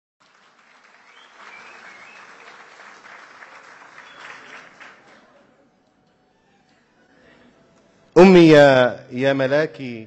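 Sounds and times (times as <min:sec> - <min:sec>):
large audience applauding: 0:00.2 - 0:05.5.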